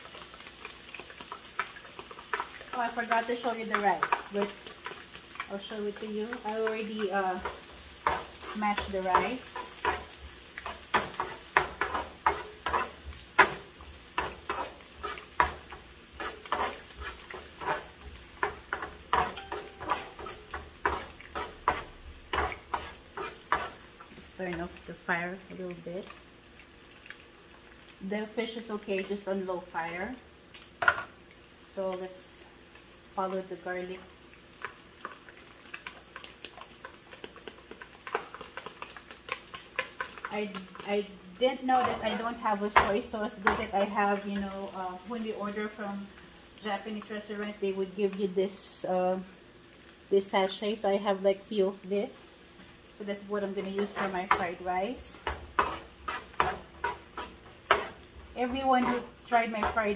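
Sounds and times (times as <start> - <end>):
onion sizzling in oil: 0.0 - 59.9
metal spoon scraping frying pan: 7.4 - 13.6, 14.2 - 23.8, 53.6 - 59.9.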